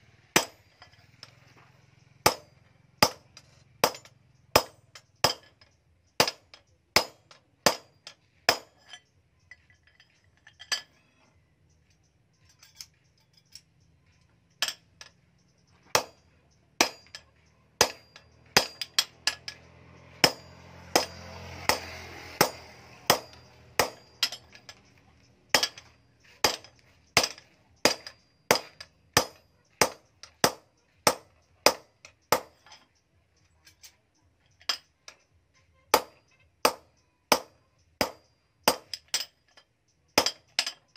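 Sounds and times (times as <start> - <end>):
hammer striking steel punch: 0.4 - 0.8, 2.3 - 5.6, 6.2 - 8.9, 15.9 - 16.2, 16.8 - 24.8, 25.5 - 32.7, 36.0 - 39.3, 40.2 - 40.7.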